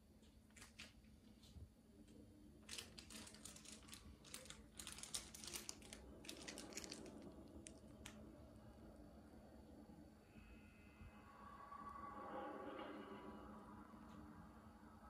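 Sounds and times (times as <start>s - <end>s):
quiet low hum: 0.0s - 15.0s
irregular clicking and crinkling: 0.2s - 8.2s.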